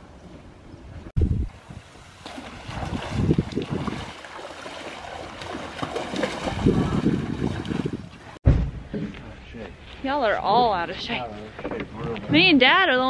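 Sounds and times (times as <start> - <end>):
wind buffeting microphone: 0.8 - 4.2, 5.4 - 8.4.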